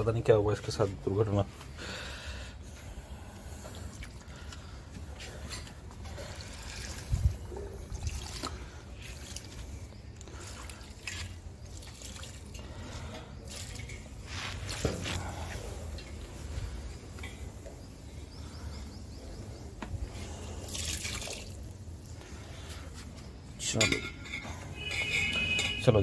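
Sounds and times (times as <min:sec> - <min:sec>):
water trickling and splashing: 0:03.4 - 0:16.2, 0:20.4 - 0:22.4.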